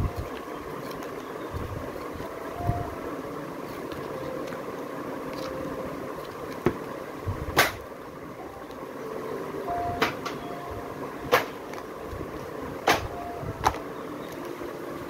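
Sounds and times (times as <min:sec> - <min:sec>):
steady background hum: 0:00.0 - 0:15.0
books tapping and knocking: 0:06.5 - 0:06.8.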